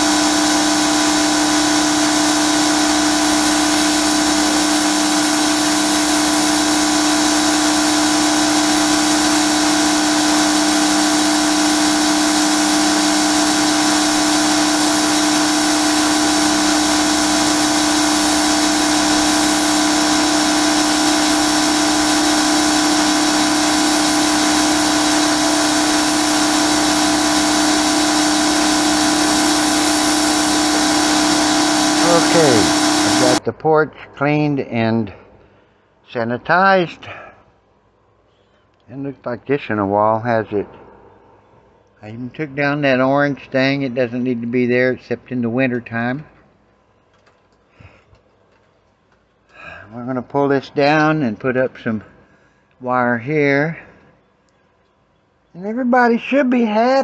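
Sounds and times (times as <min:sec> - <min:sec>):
pressure washer motor hum: 0:00.0 - 0:33.4.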